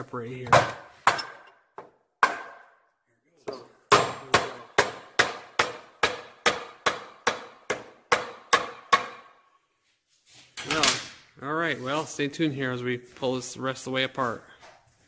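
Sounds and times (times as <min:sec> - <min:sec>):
hammer knocking on metal: 0:03.9 - 0:09.3.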